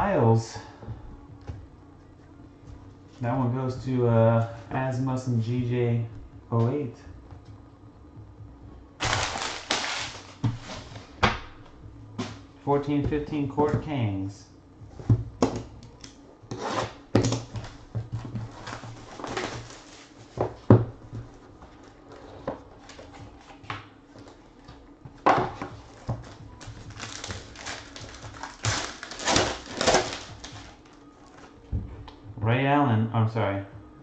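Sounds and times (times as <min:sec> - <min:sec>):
plastic crinkling: 0:09.0 - 0:11.0, 0:18.5 - 0:20.3, 0:25.9 - 0:31.6.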